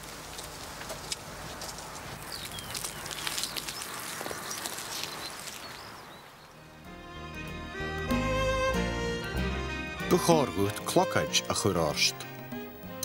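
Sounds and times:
outdoor background hiss: 0:00.0 - 0:13.0
bird chirps: 0:02.2 - 0:06.6.

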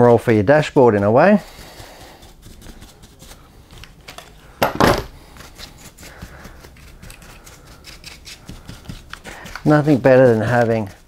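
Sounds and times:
bristle brush scrubbing plastic and metal: 0:00.0 - 0:04.0, 0:05.2 - 0:11.0
parts clattering on a bench: 0:04.1 - 0:05.2.

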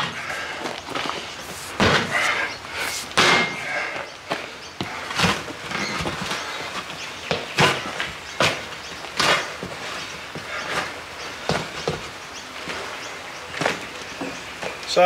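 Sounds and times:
sledgehammer striking tyre: 0:03.1 - 0:03.7.

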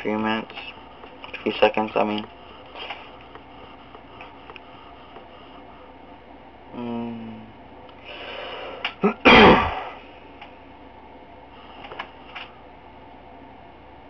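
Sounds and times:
person humming: 0:06.7 - 0:07.6
person breathing in: 0:08.0 - 0:08.9
loud throat burst: 0:09.0 - 0:10.0.

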